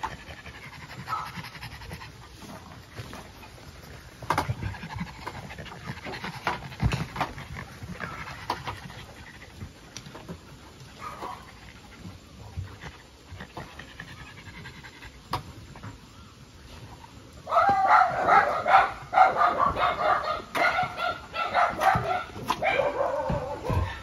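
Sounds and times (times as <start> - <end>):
dogs barking and yipping: 0.0 - 15.2, 17.4 - 24.0.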